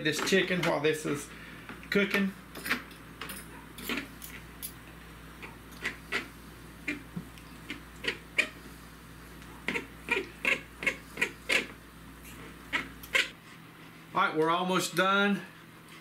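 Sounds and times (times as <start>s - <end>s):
forks scraping a plate: 2.6s - 4.4s.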